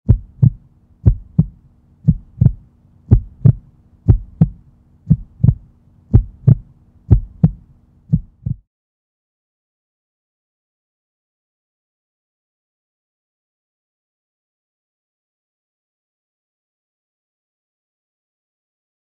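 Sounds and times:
faint low drone: 0.1s - 8.6s
heartbeat thumps: 0.1s - 8.6s.

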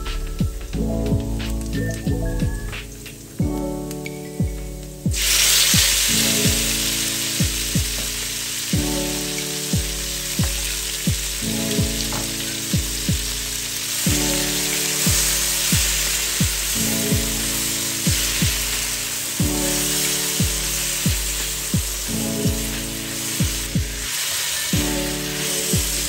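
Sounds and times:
bass thumps: 0.0s - 3.6s, 7.4s - 8.2s
background music with beat: 0.0s - 26.0s
vegetables sizzling in oil: 5.2s - 26.0s.

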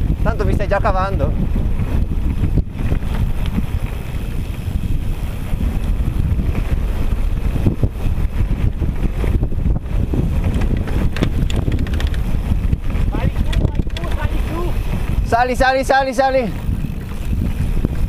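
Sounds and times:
wind buffeting microphone: 0.0s - 18.0s
bike rattling over stones: 1.3s - 18.0s
tyres rolling on gravel: 10.1s - 18.0s.

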